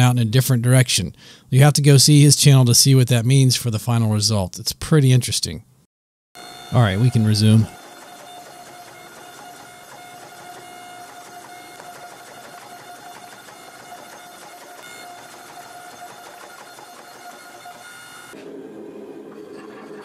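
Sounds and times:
hydraulic pump motor whine: 6.4s - 19.8s.

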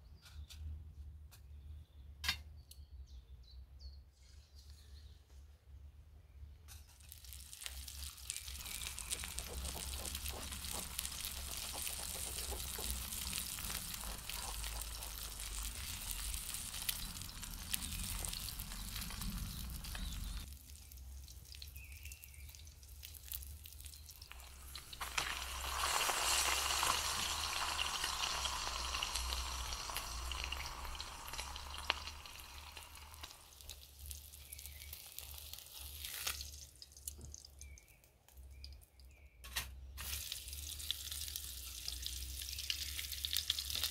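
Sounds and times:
food sizzling in frying pan: 7.0s - 20.5s, 23.0s - 36.6s, 40.0s - 43.9s.

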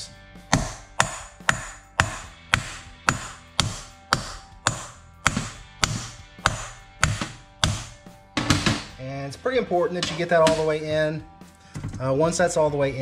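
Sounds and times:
hammer tapping metal: 0.5s - 9.0s, 10.0s - 10.8s.

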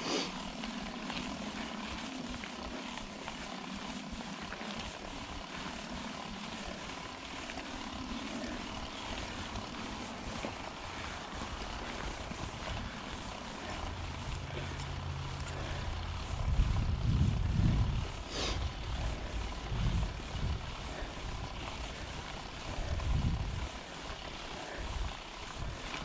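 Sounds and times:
bike tyres crunching over dirt: 0.0s - 26.0s
bike clicking and rattling: 0.2s - 26.0s
wind rumble on microphone: 7.8s - 26.0s.

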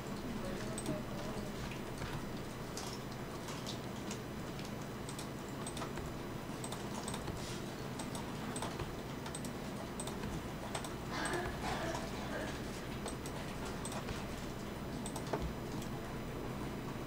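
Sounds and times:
mouse and keyboard clicks: 4.6s - 7.4s.

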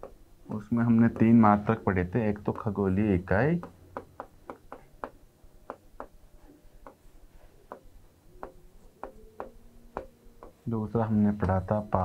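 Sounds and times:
pen tapping on writing board: 1.1s - 1.4s, 3.6s - 6.2s, 6.8s - 7.0s, 7.7s - 10.6s.

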